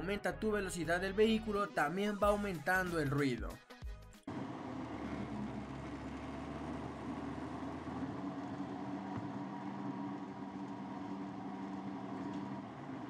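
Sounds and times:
wheel bearing humming: 4.3s - 13.0s.

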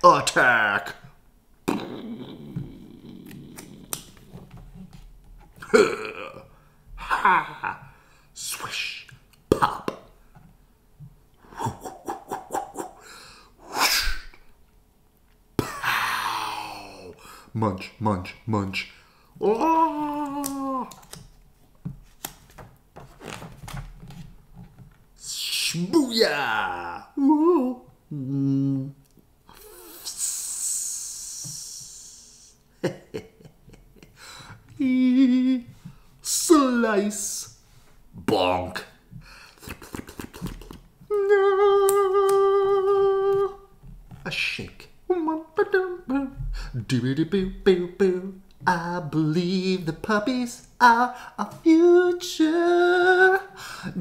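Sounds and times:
person making vocal sound effects: 1.6s - 4.5s, 5.6s - 10.0s, 11.4s - 14.4s, 15.6s - 21.2s, 25.2s - 32.6s, 34.7s - 37.6s, 38.2s - 38.9s, 39.6s - 54.0s
person hissing with mouth: 11.4s - 14.5s, 15.7s - 17.3s, 29.5s - 32.7s.

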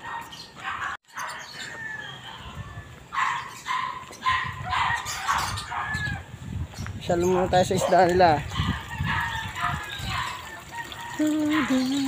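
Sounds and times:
dog barking: 0.0s - 1.4s, 3.1s - 6.0s, 7.3s - 10.4s.

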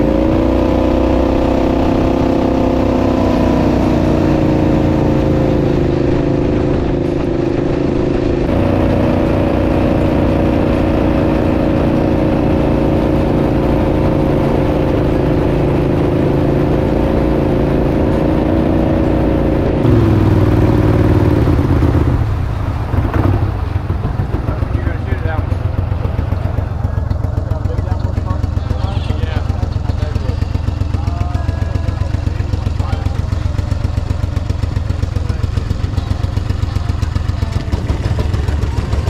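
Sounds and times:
engine running: 0.0s - 39.0s.

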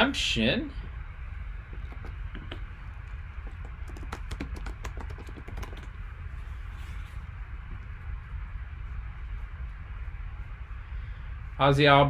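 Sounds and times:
low steady hum: 0.0s - 12.0s
computer keyboard typing: 1.7s - 2.6s, 3.4s - 6.0s.

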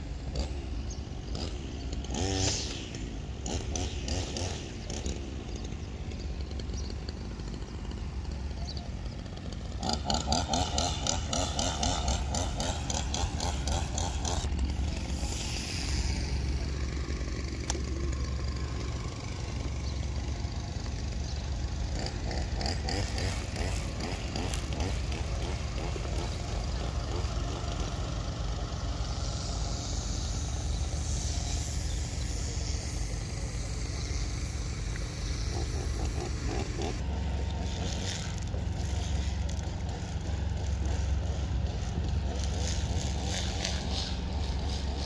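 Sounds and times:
high hiss: 14.9s - 17.4s, 28.9s - 36.5s.

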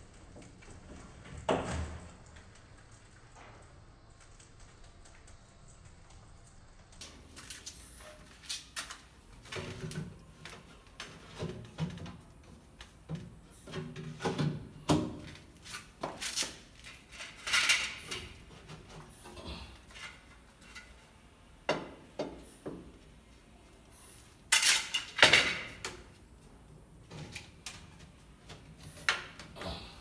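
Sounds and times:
plastic pipe knocking and scraping: 9.4s - 16.2s.

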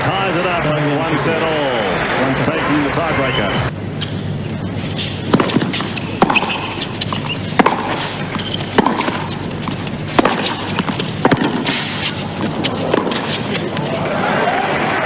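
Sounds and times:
tennis ball hit with rackets: 5.0s - 13.8s.

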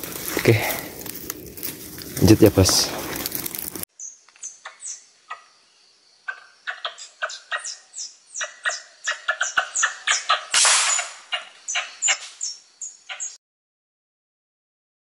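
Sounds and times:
squirrel chattering alarm chirps: 6.3s - 13.4s.

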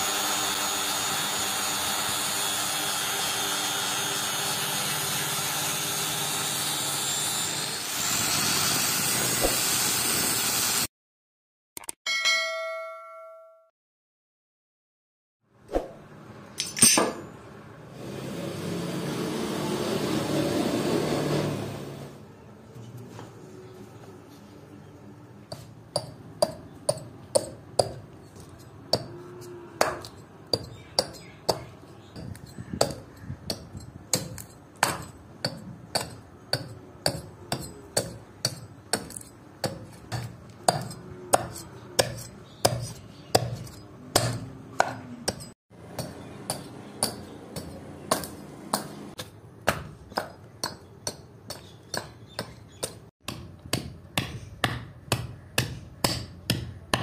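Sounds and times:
hatchet chopping wood: 25.5s - 28.1s, 29.8s - 57.0s.

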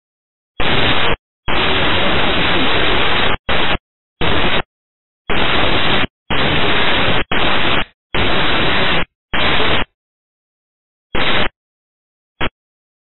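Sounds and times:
radio static bursts: 0.6s - 4.7s, 5.3s - 10.0s, 11.2s - 11.6s, 12.4s - 12.6s.

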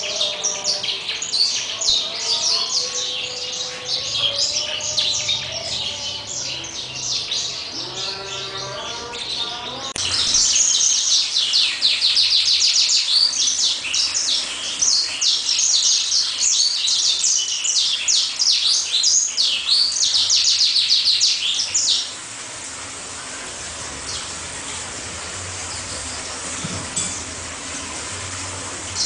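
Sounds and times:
songbird singing trills: 0.0s - 22.1s.

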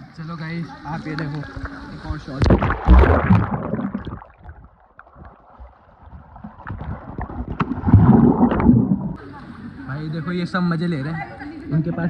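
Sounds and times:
underwater bubbling and churning: 0.8s - 9.8s.

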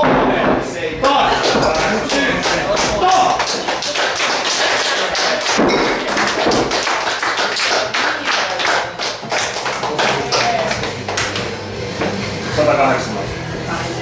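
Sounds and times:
sharp taps and claps: 1.4s - 11.6s.

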